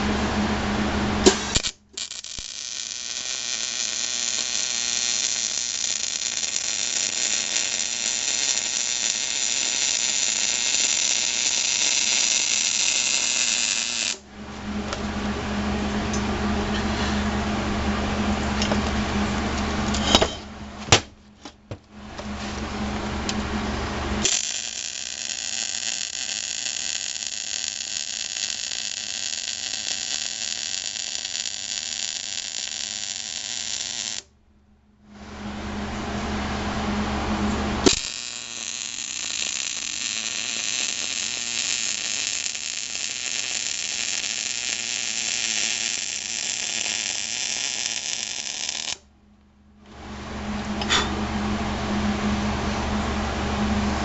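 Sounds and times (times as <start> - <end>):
machine humming: 0.0 - 20.9, 34.8 - 46.6, 49.0 - 54.0
welding arc crackling: 1.1 - 14.2, 23.3 - 34.3, 37.8 - 49.0.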